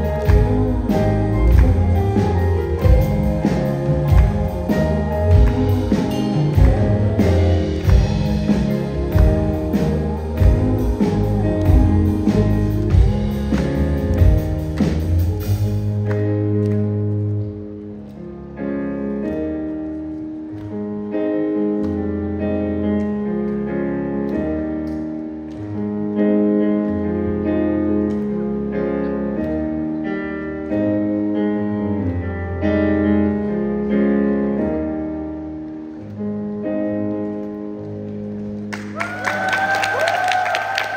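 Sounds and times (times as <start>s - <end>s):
audience clapping and cheering: 0.0s - 17.6s, 38.4s - 40.9s
piano playing slow chords: 0.0s - 39.8s.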